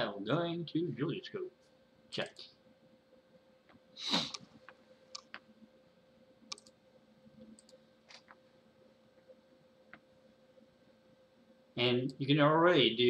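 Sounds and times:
faint steady hum: 0.0 - 13.0
computer mouse clicking: 4.3 - 5.4, 6.5 - 6.8, 7.4 - 8.4.

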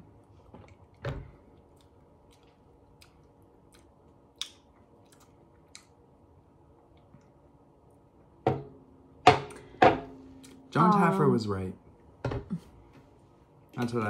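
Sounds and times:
lip smacks and tongue clicks: 1.6 - 6.0.

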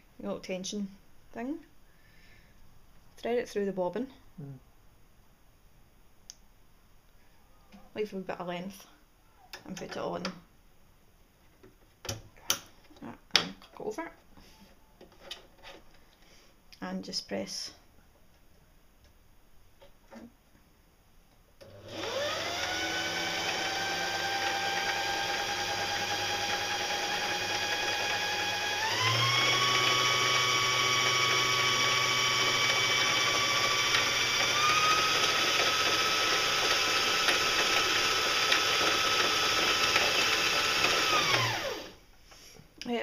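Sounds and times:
sewing machine motor whining: 21.6 - 42.0.

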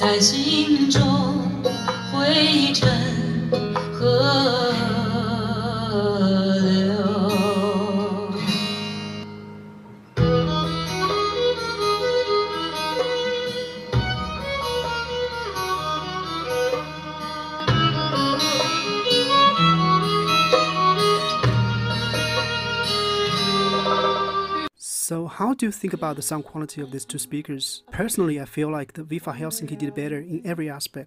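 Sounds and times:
song with guitar and strings: 0.0 - 24.7.

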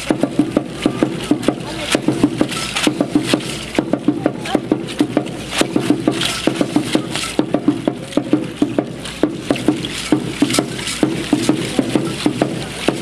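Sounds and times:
drum beating quick rhythm: 0.0 - 13.0
shaking rattle: 1.8 - 4.0, 4.9 - 7.6, 9.4 - 13.0.

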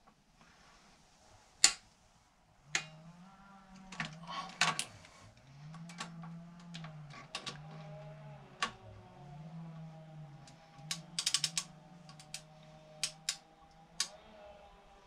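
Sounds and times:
wrench clicking on bolts: 10.9 - 13.4.

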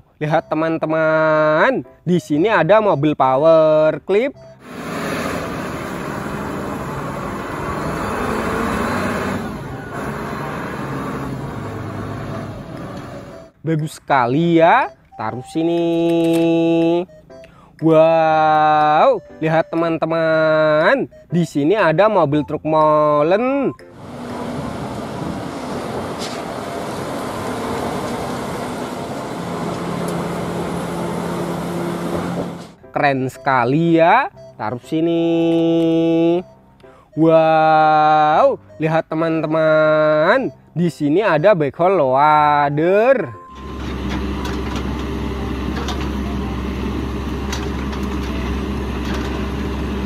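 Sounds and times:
forklift engine running: 4.4 - 13.6, 23.9 - 32.9, 43.4 - 50.0.

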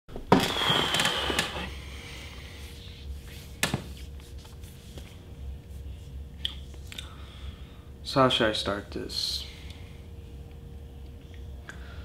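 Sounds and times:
low steady hum: 0.1 - 12.0.

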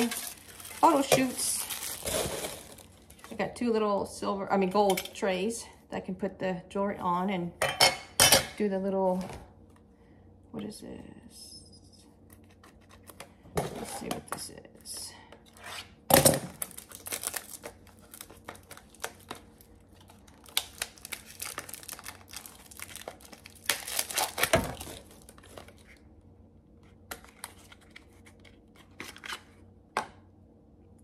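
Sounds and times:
packaging tearing and crinkling: 0.0 - 3.3, 16.4 - 26.0.

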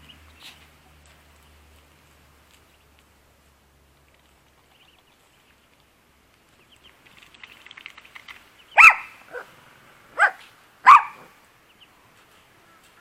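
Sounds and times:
dog yelping: 8.8 - 9.5, 10.2 - 11.3
small dog barking: 8.8 - 9.5, 10.1 - 11.4.

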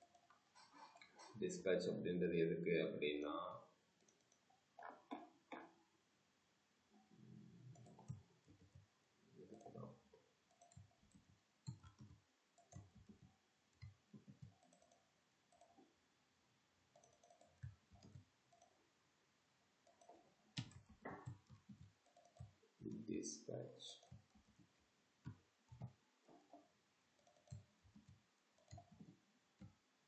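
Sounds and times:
mouse and keyboard clicks: 19.8 - 23.0.

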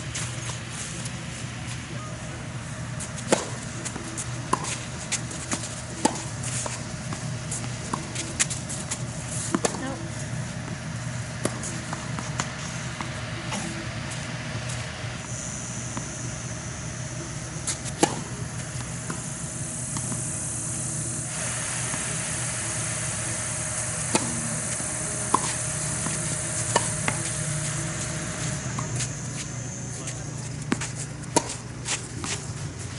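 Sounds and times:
outdoor hum and hiss: 0.0 - 32.9
tennis ball knocks: 17.9 - 19.3, 24.0 - 29.0.

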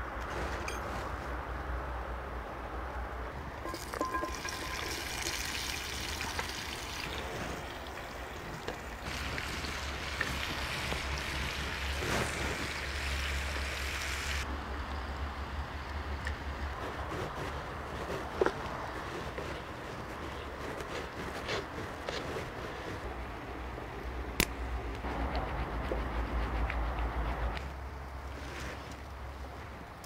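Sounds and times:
wood fire crackling: 3.6 - 14.5
meat sizzling in a skillet: 9.0 - 14.4.

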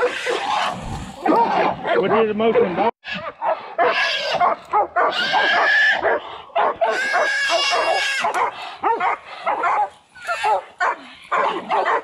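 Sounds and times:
hog squealing: 0.0 - 0.8, 5.1 - 6.0, 6.8 - 8.3
dogs barking and yipping: 0.0 - 12.0.

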